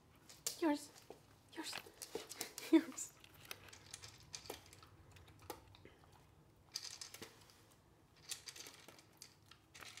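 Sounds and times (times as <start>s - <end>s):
puppy eating from bowl: 1.9s - 7.6s.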